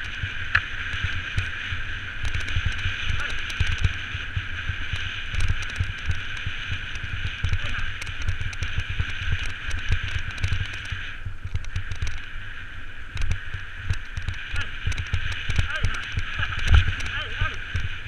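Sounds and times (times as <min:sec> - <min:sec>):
bike jolts rumbling: 0:00.0 - 0:18.0
wind buffeting microphone: 0:00.0 - 0:18.0
light rattling clicks: 0:04.8 - 0:12.3, 0:13.1 - 0:17.9.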